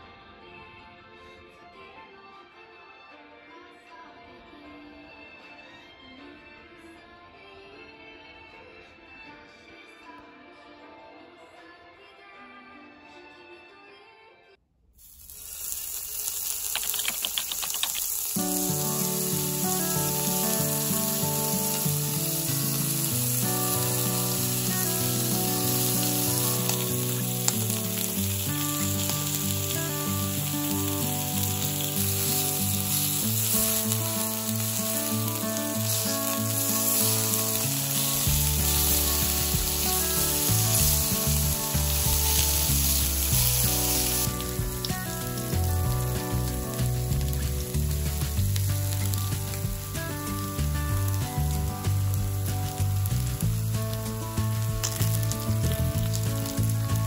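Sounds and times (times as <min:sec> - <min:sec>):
food sizzling on a griddle: 0:15.0 - 0:57.0
background music with bass: 0:18.4 - 0:57.0.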